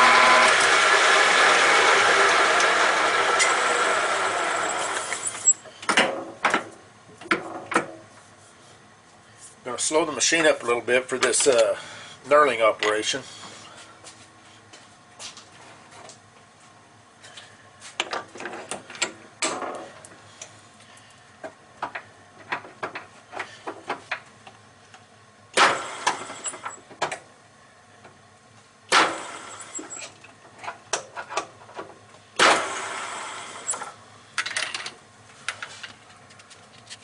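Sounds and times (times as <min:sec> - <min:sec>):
loud metal clunks: 0:28.9 - 0:29.5, 0:32.4 - 0:32.9.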